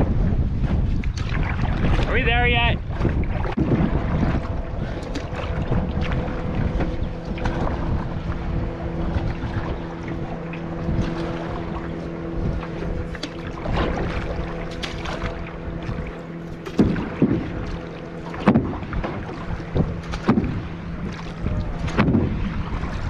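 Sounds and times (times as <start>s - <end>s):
paddle splashes and knocks: 0.0s - 23.0s
steady low hum: 0.0s - 23.0s
water sloshing: 0.0s - 23.0s
wind buffeting microphone: 0.0s - 23.0s.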